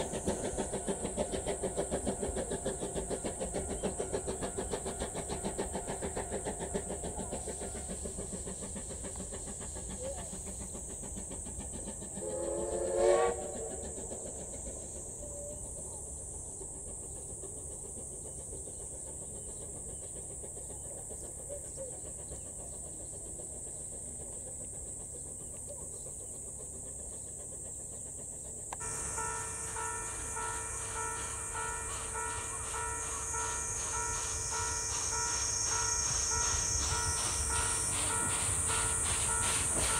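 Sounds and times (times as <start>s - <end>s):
train running rhythmically: 0.0s - 39.9s
steam whistle blast: 12.2s - 13.9s.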